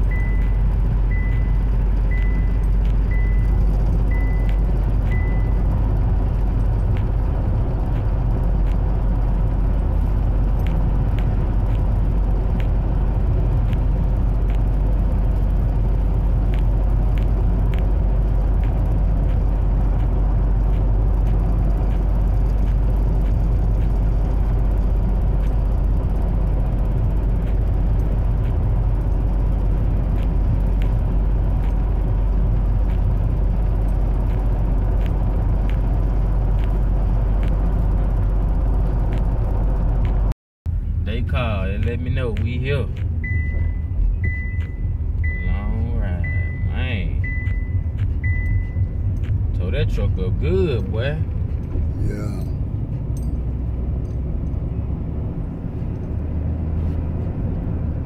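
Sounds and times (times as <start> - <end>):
high beeps: 0.0 - 5.6, 43.2 - 49.0
car road and engine rumble: 0.0 - 58.0.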